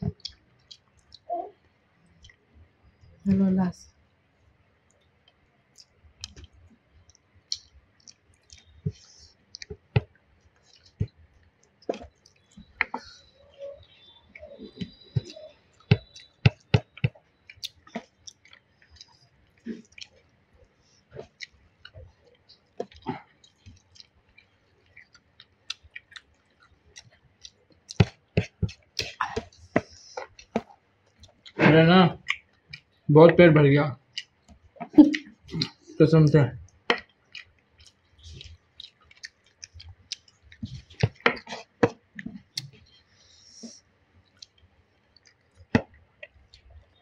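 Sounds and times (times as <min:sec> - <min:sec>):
chewing and mouth sounds: 0:00.0 - 0:03.3, 0:04.8 - 0:33.1, 0:34.0 - 0:36.0, 0:36.6 - 0:47.0.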